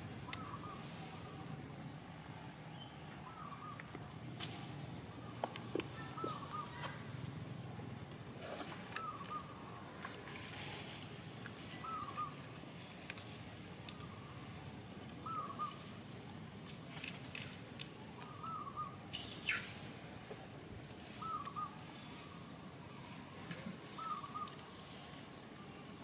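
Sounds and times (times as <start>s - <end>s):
bird call: 6.0s - 6.9s, 11.7s - 12.4s, 15.2s - 15.8s, 18.2s - 19.8s, 21.1s - 22.3s, 23.9s - 24.6s
hissy rustle: 8.1s - 18.3s, 19.0s - 26.0s.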